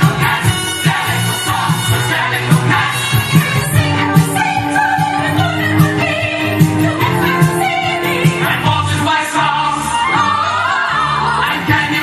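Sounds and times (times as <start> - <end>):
steady regular beat: 0.0 - 9.0
singing voices: 0.0 - 12.0.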